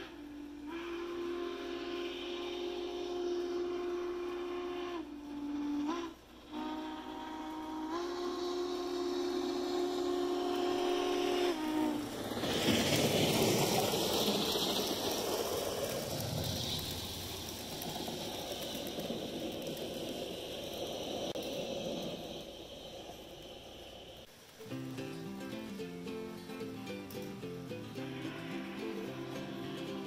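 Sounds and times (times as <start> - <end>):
steam whistle blasts: 0.0 - 17.8, 24.7 - 30.0
locomotive running noise: 0.0 - 30.0
rushing hiss of steam: 0.0 - 30.0.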